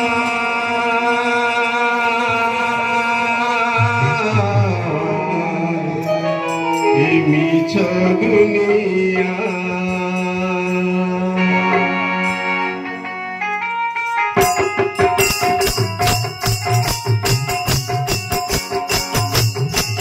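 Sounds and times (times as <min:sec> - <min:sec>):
man singing into microphone: 0:00.0 - 0:12.5
long held instrumental notes: 0:00.0 - 0:20.0.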